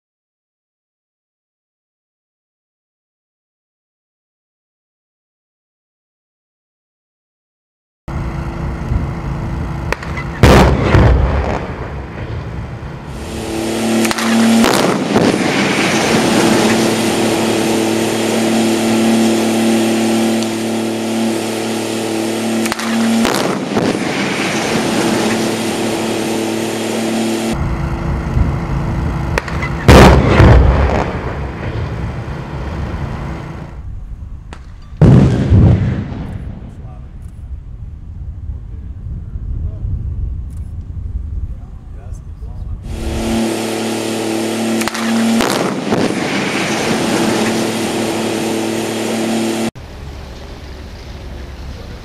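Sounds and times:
steady humming tone: 0:08.1 - 0:35.0, 0:35.8 - 0:52.0
rumbling noise: 0:08.1 - 0:43.7
explosive charges banging: 0:09.9 - 0:27.6, 0:29.3 - 0:33.3, 0:34.5 - 0:37.0, 0:44.6 - 0:49.7.

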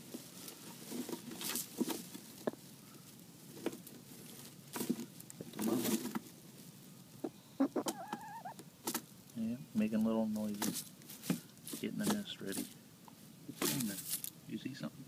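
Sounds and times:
dry straw rustling and crackling: 0:00.0 - 0:07.0, 0:13.6 - 0:14.4.

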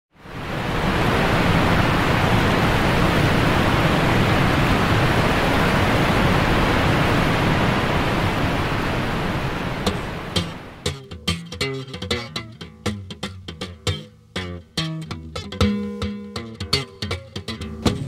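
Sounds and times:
steady rushing noise: 0:00.2 - 0:10.9.

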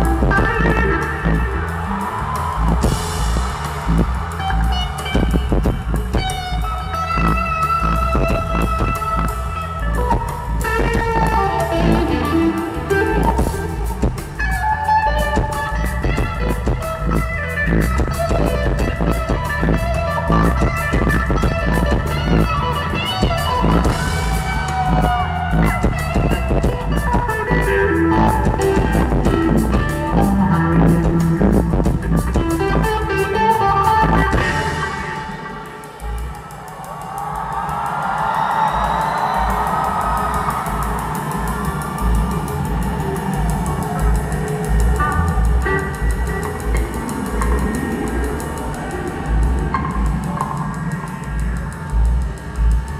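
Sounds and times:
bass guitar: 0:00.0 - 0:36.4, 0:38.8 - 0:52.9
electric guitar lead lines: 0:00.0 - 0:37.0, 0:37.6 - 0:52.9
drum kit: 0:00.0 - 0:52.9.

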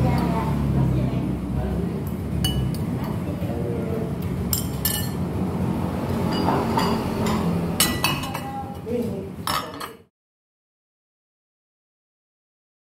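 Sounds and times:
spoon clinking on porcelain bowl: 0:02.4 - 0:03.2, 0:04.5 - 0:05.2, 0:06.3 - 0:10.0.

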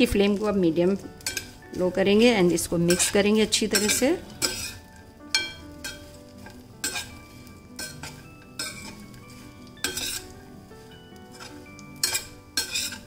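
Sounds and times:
faint sizzle: 0:00.0 - 0:13.0
spatula clinking on metal pan: 0:01.2 - 0:01.6, 0:02.8 - 0:10.4, 0:11.2 - 0:13.0.

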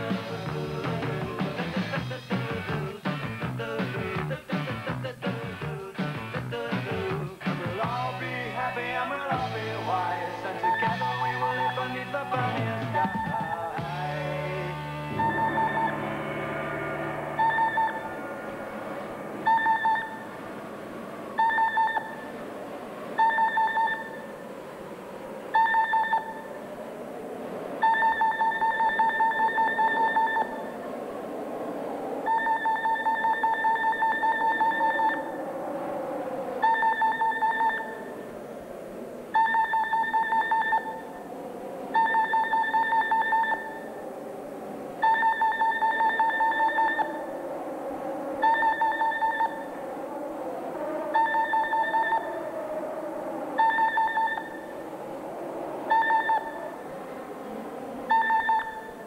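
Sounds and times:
buzzy electronic beeping: 0:13.0 - 0:20.8
low wavering drone: 0:13.8 - 0:21.4.

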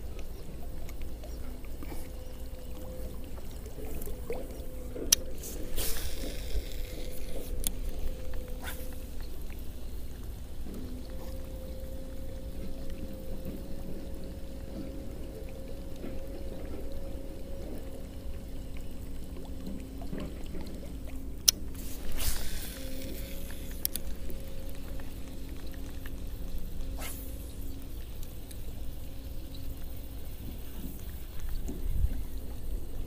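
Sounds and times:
reel clicks: 0:00.0 - 0:14.5, 0:21.4 - 0:32.6
fishing reel whirring: 0:00.0 - 0:20.1, 0:21.4 - 0:31.7
wind rumble on microphone: 0:00.0 - 0:33.0.

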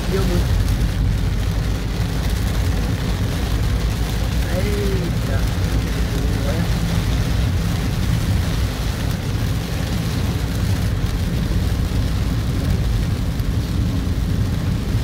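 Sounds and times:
car tyres on wet road: 0:00.0 - 0:15.0
rain hissing on windshield: 0:00.0 - 0:15.0.

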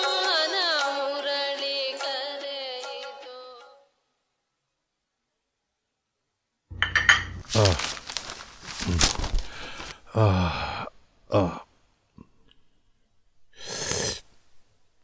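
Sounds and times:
newspaper rustling: 0:07.1 - 0:10.1
man sighing and grunting: 0:08.8 - 0:12.5
slurping sip of tea: 0:13.6 - 0:14.3.

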